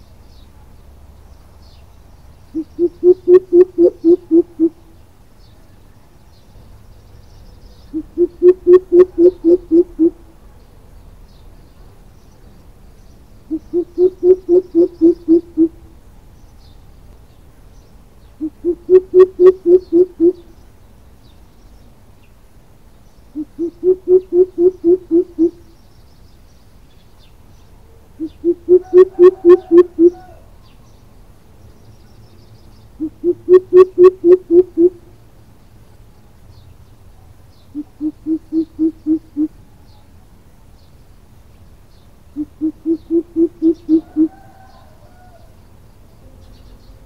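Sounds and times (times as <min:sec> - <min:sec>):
bird deep hooting call: 0:02.5 - 0:04.9, 0:07.9 - 0:10.2, 0:13.5 - 0:15.8, 0:18.4 - 0:20.5, 0:23.3 - 0:25.7, 0:28.2 - 0:30.5, 0:33.0 - 0:35.1, 0:37.7 - 0:39.6, 0:42.3 - 0:45.4.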